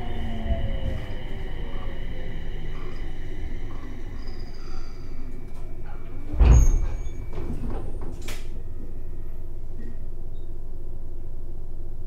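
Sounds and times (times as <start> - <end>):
train low hum: 0.0 - 12.0
train doors shutting with thud: 5.5 - 8.6.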